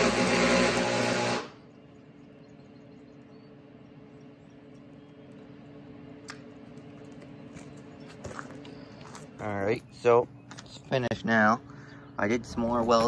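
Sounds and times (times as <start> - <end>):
welding arc crackling: 0.0 - 1.6
faint low hum: 1.5 - 13.0.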